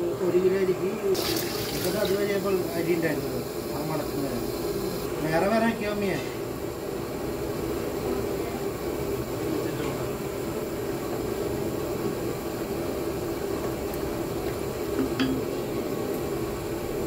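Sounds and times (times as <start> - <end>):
kitchen background hum: 0.0 - 17.0
faint utensil clinks: 15.0 - 15.6.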